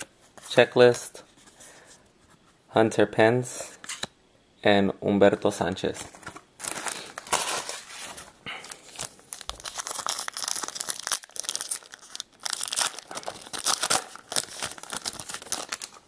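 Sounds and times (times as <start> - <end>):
plastic wrapper crinkling: 6.0 - 16.0
wrapper tearing: 6.6 - 16.0.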